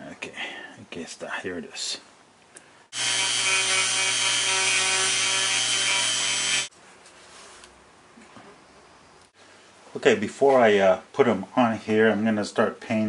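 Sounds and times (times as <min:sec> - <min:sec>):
rotary tool cutting: 0:03.0 - 0:06.7.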